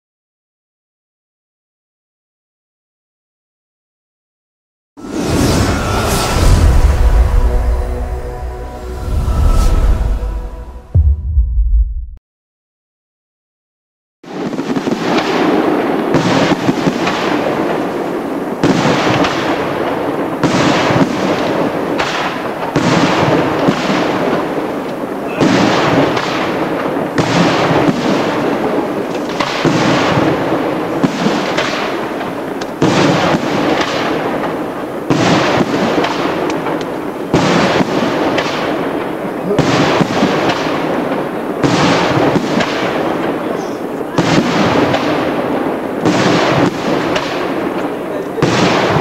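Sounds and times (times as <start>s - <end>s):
fireworks crackling: 5.0s - 8.3s, 14.3s - 49.0s
fireworks loud reports: 5.0s - 12.2s, 14.2s - 49.0s.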